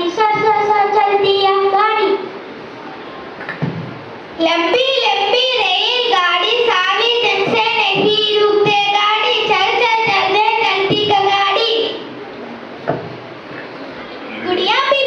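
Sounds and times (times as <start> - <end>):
child singing: 4.4 - 12.0.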